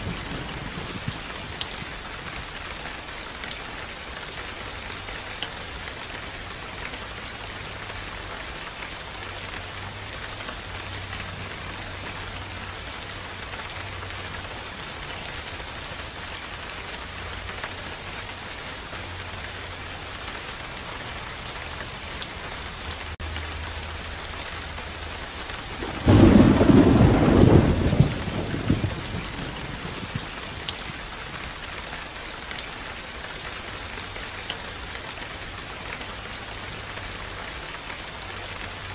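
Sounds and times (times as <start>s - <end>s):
thunder clap rumbling: 0.0s - 2.8s, 25.8s - 31.6s
steady rain hissing: 0.0s - 38.9s.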